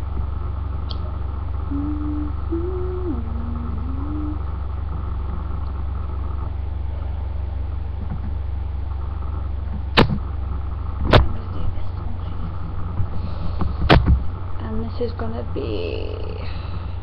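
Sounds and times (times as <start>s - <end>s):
low electrical hum: 0.0s - 17.0s
person humming notes: 1.7s - 4.5s
sharp click: 10.0s - 10.2s.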